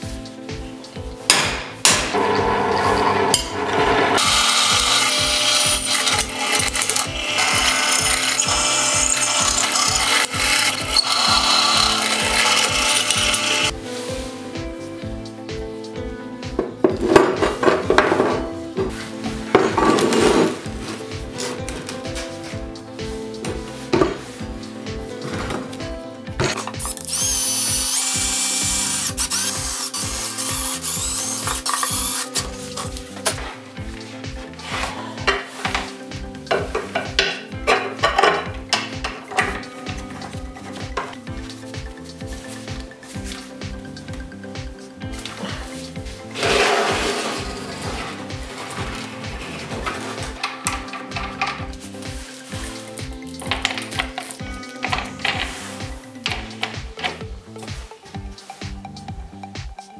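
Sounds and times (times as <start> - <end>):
drill press boring steel: 4.2 - 13.7, 26.8 - 32.5.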